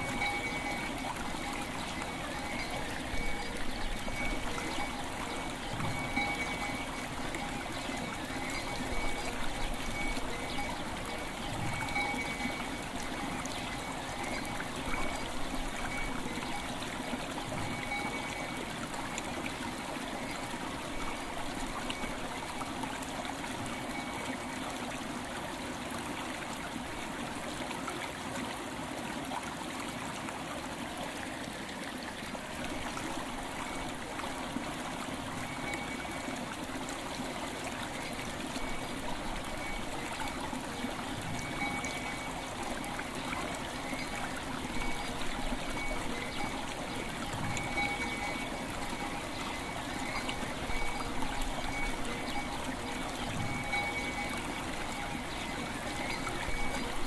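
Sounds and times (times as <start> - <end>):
faint bell tones: 0.0 - 19.2, 23.6 - 24.5, 35.1 - 36.5, 37.9 - 57.0
river flowing: 0.0 - 57.0.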